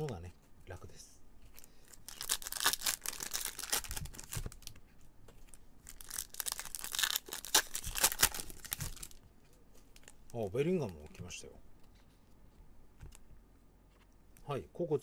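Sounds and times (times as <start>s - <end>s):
foil wrapper crinkling and tearing: 1.8s - 4.7s, 5.8s - 9.2s.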